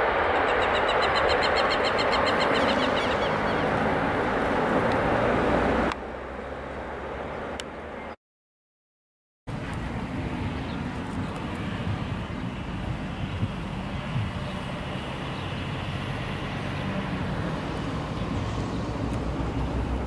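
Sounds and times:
jet engines roaring: 0.0 - 8.0, 9.5 - 20.0
bird chirping: 0.3 - 3.7.

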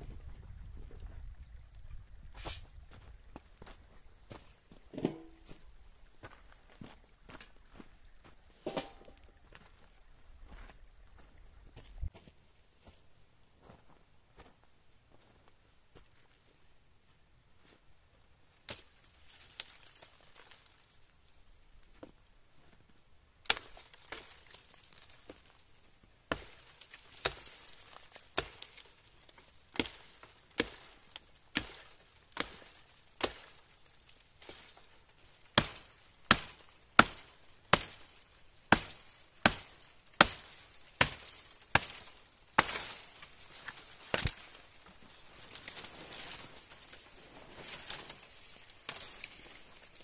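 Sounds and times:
blade chopping wood: 28.3 - 28.8, 35.6 - 43.0.

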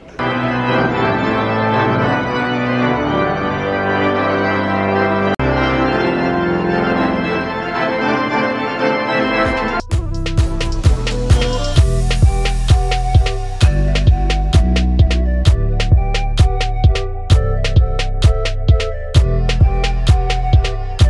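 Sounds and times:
pipe organ chords: 0.0 - 21.0
background music with steady beat: 8.8 - 21.0.

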